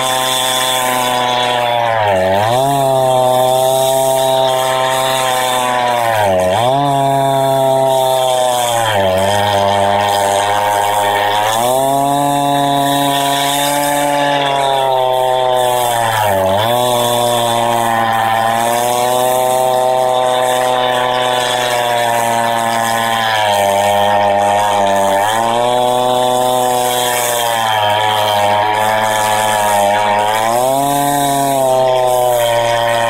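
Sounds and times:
chainsaw ripping through log: 0:00.0 - 0:33.0.

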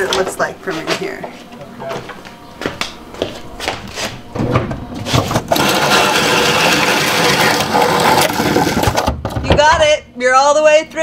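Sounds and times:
cable rubbing through wooden wall: 0:05.0 - 0:09.1.

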